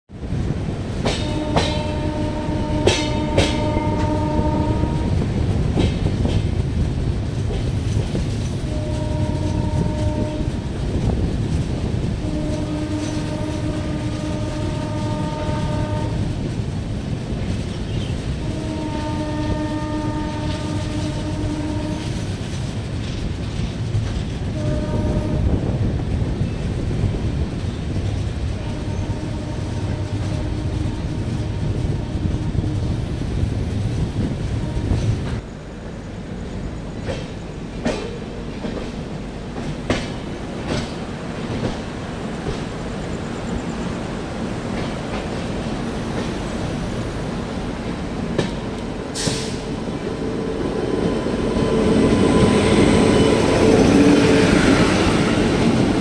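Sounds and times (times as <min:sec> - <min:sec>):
train wheels rumbling on rails: 0:00.1 - 0:56.0
locomotive horn blasts: 0:01.2 - 0:05.2, 0:08.6 - 0:10.6, 0:12.2 - 0:16.5, 0:18.3 - 0:22.2, 0:24.5 - 0:25.7, 0:28.5 - 0:33.0, 0:34.6 - 0:35.4.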